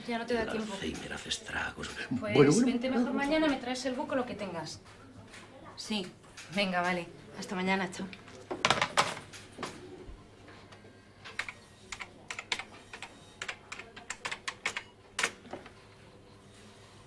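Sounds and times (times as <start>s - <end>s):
keyboard typing: 11.3s - 15.3s.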